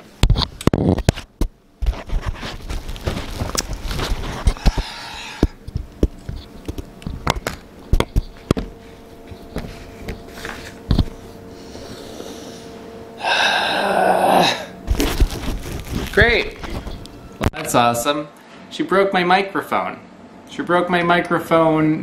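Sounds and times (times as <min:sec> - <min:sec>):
faint steady hum: 0:00.0 - 0:22.0
loud breathy rush: 0:04.4 - 0:05.6.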